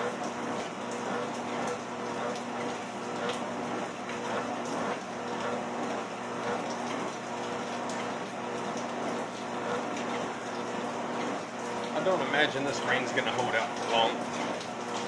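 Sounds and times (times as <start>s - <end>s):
treadmill motor hum: 0.0s - 15.0s.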